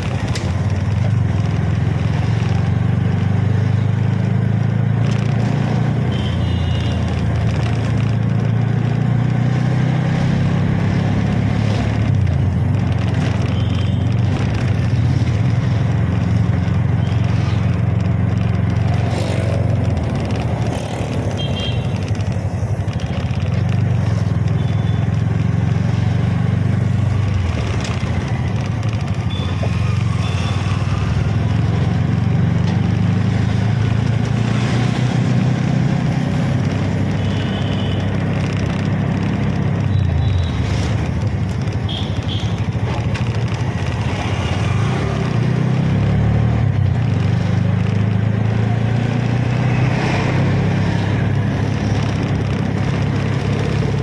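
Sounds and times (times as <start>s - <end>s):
passing motorbikes and scooters: 0.0s - 54.0s.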